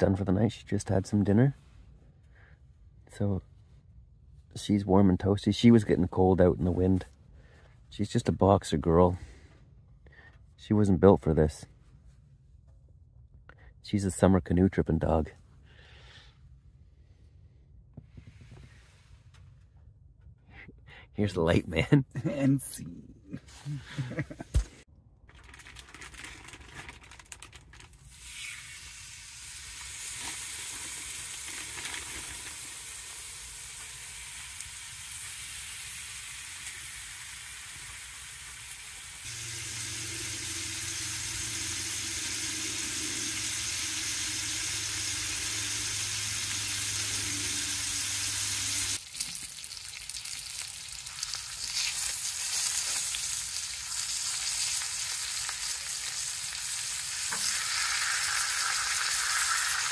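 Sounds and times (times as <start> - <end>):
steaks sizzling in a pan: 29.0 - 59.9
low hum: 39.3 - 49.0.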